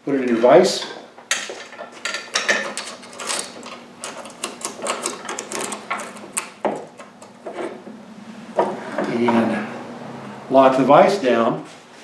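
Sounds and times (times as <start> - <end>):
saw chain clicking and rattling: 1.3 - 7.4.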